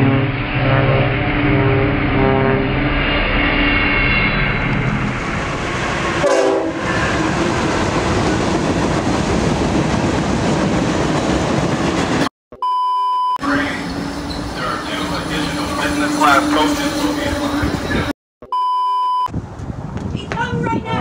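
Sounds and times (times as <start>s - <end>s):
locomotive horn blasts: 0.0s - 2.8s, 6.2s - 6.9s, 14.6s - 18.1s
freight train wheels rumbling: 4.5s - 12.3s, 13.4s - 18.1s.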